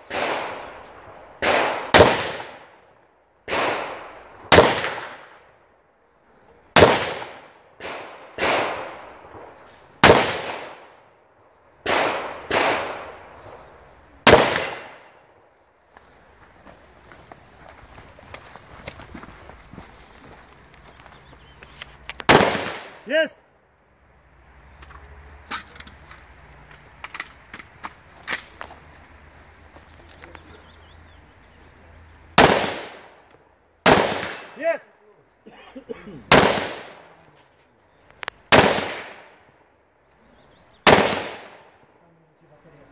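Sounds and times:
echoing gunshots: 0.0 - 5.5, 6.7 - 11.2, 11.8 - 13.6, 14.2 - 15.4, 22.3 - 23.3, 32.3 - 34.8, 36.3 - 37.2, 38.5 - 39.5, 40.8 - 41.9.

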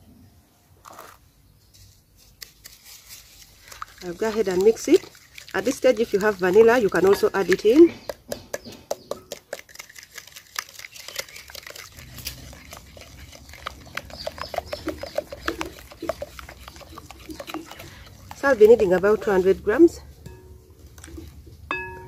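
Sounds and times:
spoon tapping glass bowl: 20.2 - 20.6, 21.7 - 22.0.

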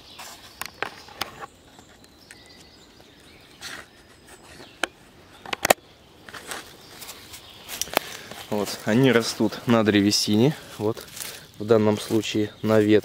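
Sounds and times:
twigs snapping underfoot: 4.6 - 9.5, 10.3 - 12.2
footsteps through dry leaves: 6.2 - 13.0.

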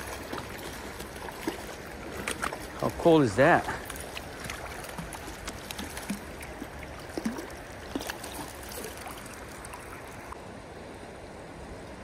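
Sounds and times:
creek water trickling: 0.0 - 12.0.

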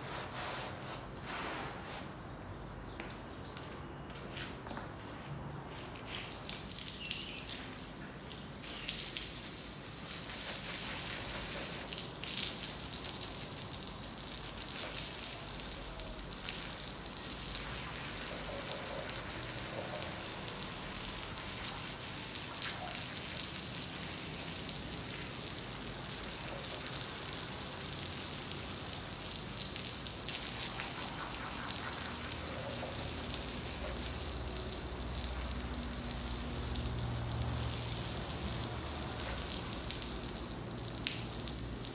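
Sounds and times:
water splashing on floor: 5.7 - 41.9
water spray hissing: 23.6 - 41.9.

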